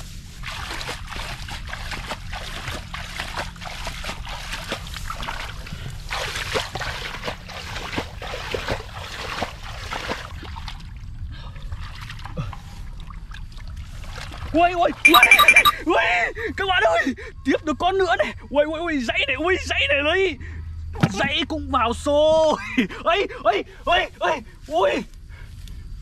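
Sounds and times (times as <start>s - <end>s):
water splashing and sloshing: 0.3s - 14.5s.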